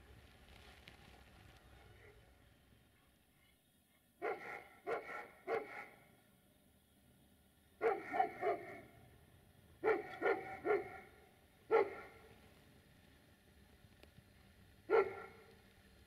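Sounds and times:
dog barking: 3.0s - 6.1s, 7.8s - 9.0s, 9.8s - 12.3s, 14.9s - 15.5s.

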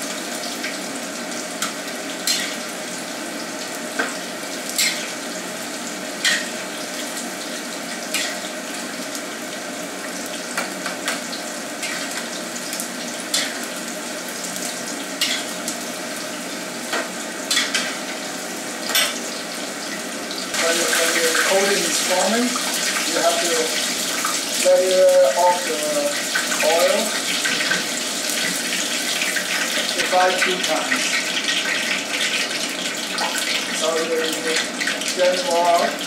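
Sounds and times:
meat deep-frying in oil: 0.0s - 36.0s.

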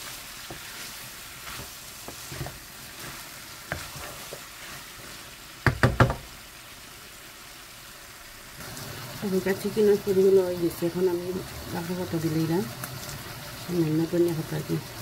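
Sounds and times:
wooden spatula scraping pan: 0.0s - 5.3s
food sizzling in a frying pan: 0.0s - 15.0s
loud knocks: 5.6s - 6.2s.

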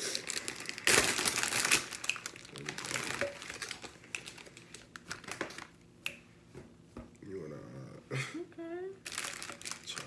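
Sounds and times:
plastic packaging crinkling: 0.1s - 5.8s, 9.0s - 10.0s.

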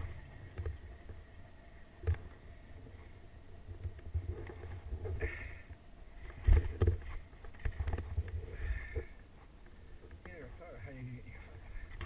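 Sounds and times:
low rumble: 0.0s - 9.2s.

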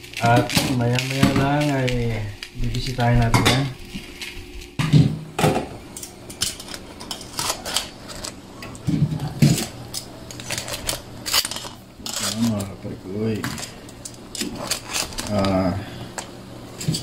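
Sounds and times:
cookware and utensils clattering: 3.0s - 3.9s, 4.7s - 12.7s.

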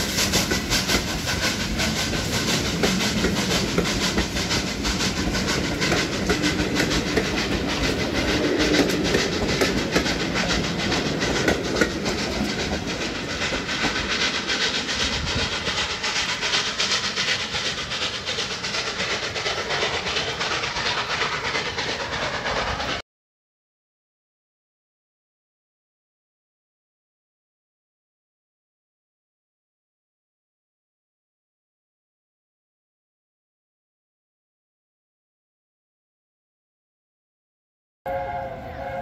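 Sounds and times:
steam train passing: 0.0s - 23.0s, 38.1s - 39.0s.

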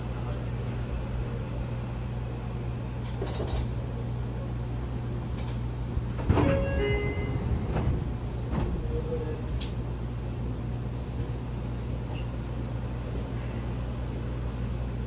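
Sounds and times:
train equipment low hum: 0.0s - 15.0s
train doors sliding open: 3.0s - 3.8s, 5.2s - 10.2s
door chime tones: 6.4s - 7.4s.

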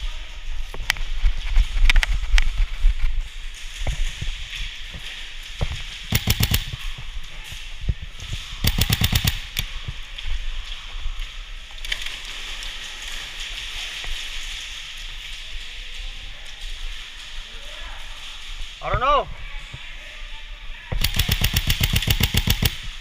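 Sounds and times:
airsoft rifle bursts: 6.1s - 6.8s, 8.6s - 9.7s, 21.0s - 22.9s.

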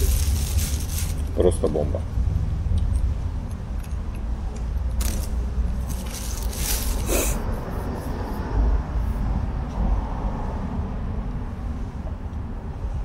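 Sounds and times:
plastic bag crinkling: 0.0s - 1.5s, 5.0s - 7.4s
steady low rumble: 0.0s - 13.0s.

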